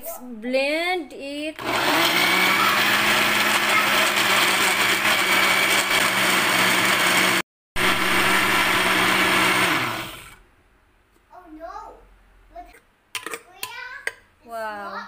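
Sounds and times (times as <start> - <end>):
blender motor running: 1.6 - 10.4.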